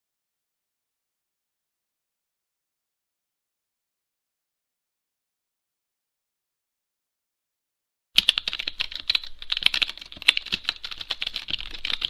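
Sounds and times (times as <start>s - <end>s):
fast keyboard typing: 8.2s - 12.0s.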